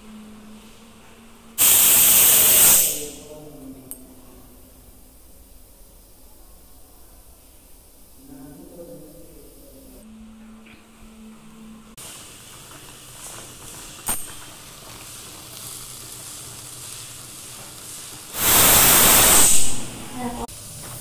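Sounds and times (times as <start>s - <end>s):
pressure cooker steam hiss: 1.6s - 3.4s, 12.0s - 21.0s.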